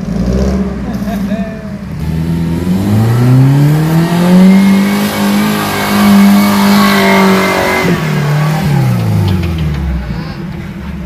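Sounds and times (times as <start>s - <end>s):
engine revving: 0.0s - 1.2s, 1.8s - 10.0s.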